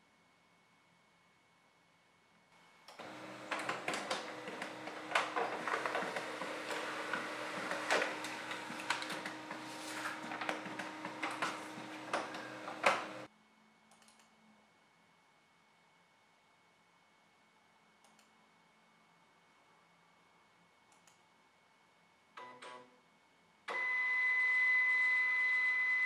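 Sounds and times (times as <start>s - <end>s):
laser printer printing: 2.9s - 13.3s.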